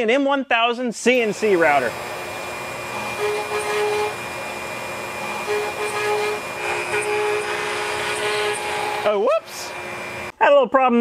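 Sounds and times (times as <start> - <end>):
router spindle milling wood: 1.1 - 10.3
second machine tone: 2.9 - 4.3, 5.2 - 9.0.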